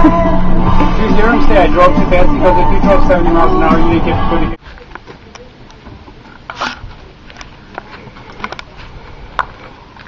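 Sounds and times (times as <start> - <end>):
hose fitting scraping: 6.2 - 10.0.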